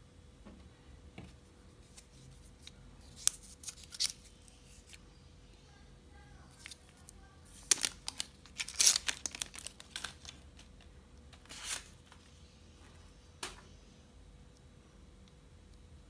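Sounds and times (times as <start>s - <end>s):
crinkly rustling: 6.5s - 13.0s.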